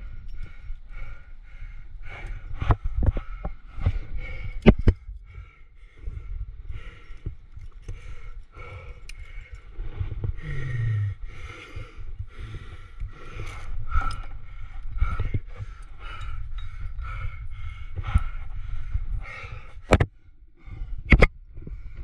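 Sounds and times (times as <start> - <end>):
climber breathing in puffs: 0.0 - 22.0
climbing gear clinking and scraping: 6.8 - 20.0.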